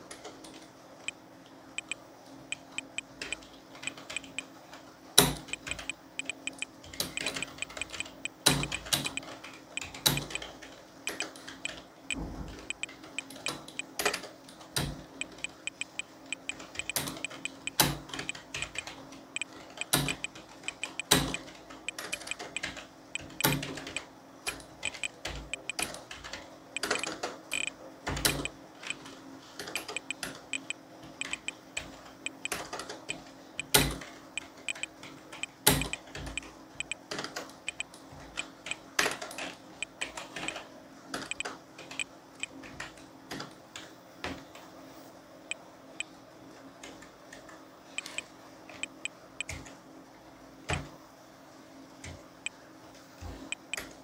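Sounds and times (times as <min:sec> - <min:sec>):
faint steady hum: 0:00.0 - 0:54.0
keyboard key clicks: 0:05.2 - 0:10.5, 0:11.1 - 0:13.8, 0:14.8 - 0:25.9, 0:26.8 - 0:28.5, 0:29.7 - 0:34.0, 0:34.7 - 0:37.0.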